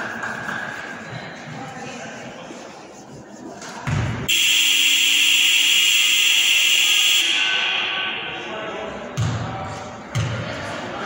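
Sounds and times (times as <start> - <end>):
gym buzzer blaring: 4.3 - 8.3.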